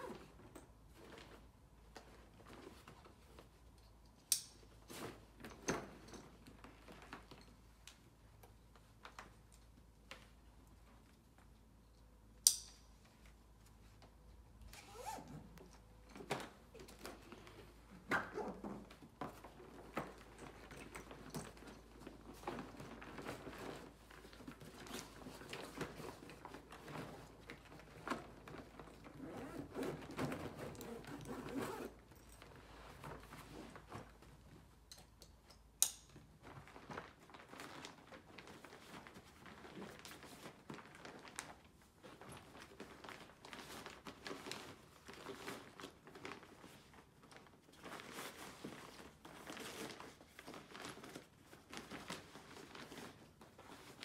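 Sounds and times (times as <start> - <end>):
fabric rustling and crinkling: 0.0 - 34.9, 36.2 - 54.0
zip being drawn closed: 14.7 - 15.5, 30.7 - 32.0.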